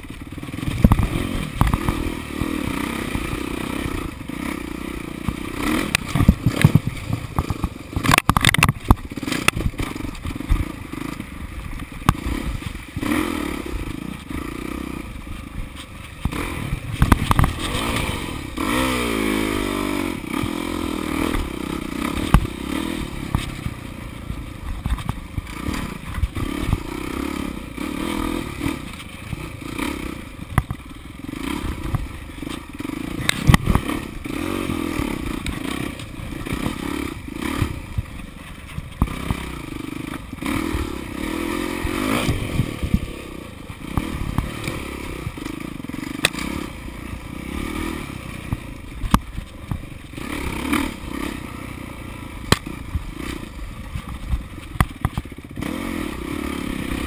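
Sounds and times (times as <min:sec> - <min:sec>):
dirt bike engine revving: 0:00.0 - 0:57.0
bike knocking and clattering: 0:05.2 - 0:13.2, 0:15.3 - 0:18.0, 0:20.4 - 0:27.1, 0:30.4 - 0:46.6, 0:48.4 - 0:50.2, 0:52.4 - 0:55.7.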